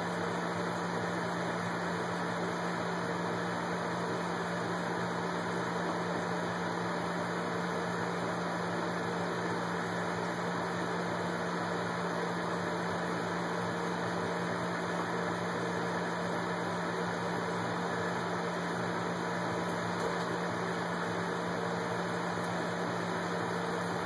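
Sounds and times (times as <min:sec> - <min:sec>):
steady mechanical hum: 0:00.0 - 0:24.0.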